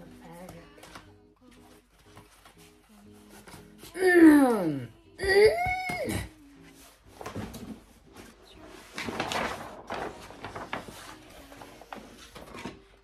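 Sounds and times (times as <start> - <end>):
faint background music: 0.0 - 13.0
paper rustling: 0.1 - 3.9, 6.5 - 13.0.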